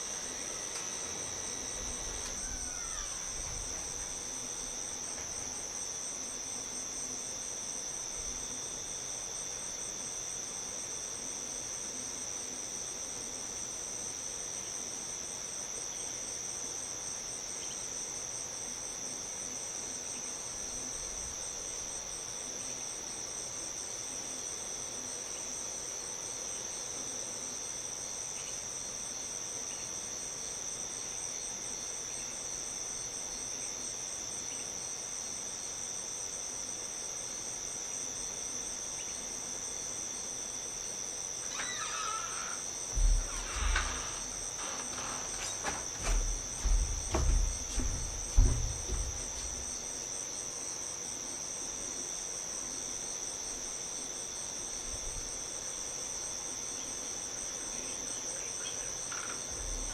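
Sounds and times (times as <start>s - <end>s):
crickets and night insects trilling: 0.0s - 59.9s.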